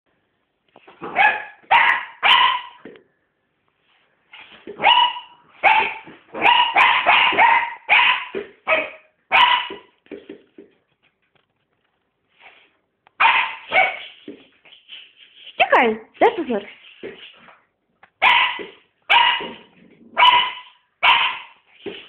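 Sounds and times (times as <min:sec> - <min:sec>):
dog barking: 0:01.1 - 0:02.8, 0:04.8 - 0:09.9, 0:13.2 - 0:14.1, 0:18.2 - 0:21.6.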